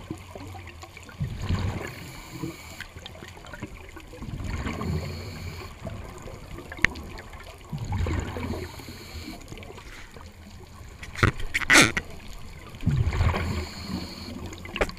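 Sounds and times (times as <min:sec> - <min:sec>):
bubbling gurgle: 0:00.0 - 0:14.9
underwater regulator breathing bubbles: 0:11.0 - 0:12.1, 0:12.9 - 0:14.9.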